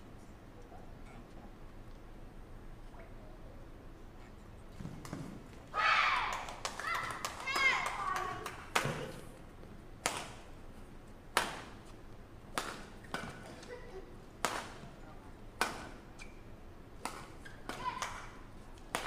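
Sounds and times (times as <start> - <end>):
rackets striking shuttlecock: 12.5 - 13.7, 14.4 - 14.9, 15.6 - 19.0.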